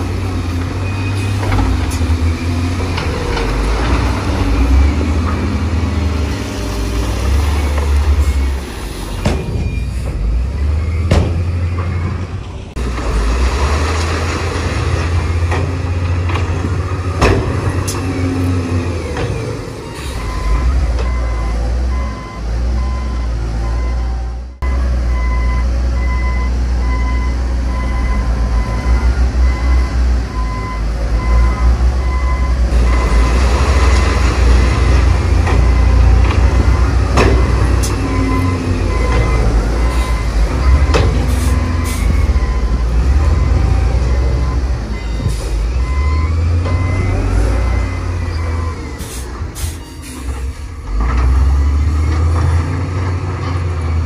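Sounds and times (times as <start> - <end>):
heavy diesel engines rumbling: 0.0 - 54.0
reversing alarm beeping: 7.2 - 12.2, 17.8 - 50.5.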